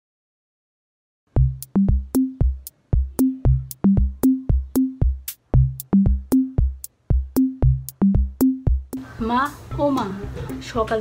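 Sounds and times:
electronic music with drum machine: 1.4 - 9.1.

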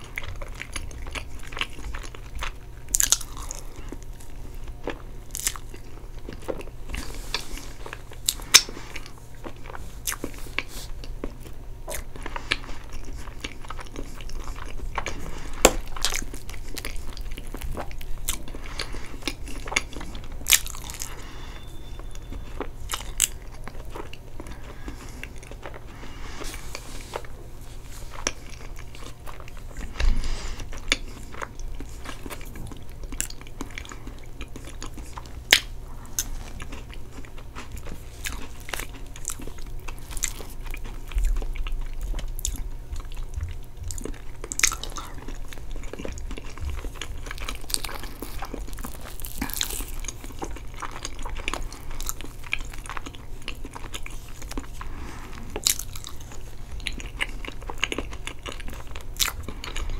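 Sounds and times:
wet chewing and mouth smacks: 0.0 - 21.3, 26.7 - 54.9, 55.5 - 59.9.

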